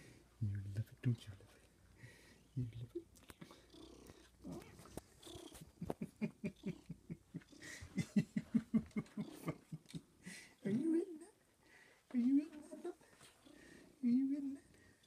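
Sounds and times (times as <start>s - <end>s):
cat purring: 0.5s - 11.4s.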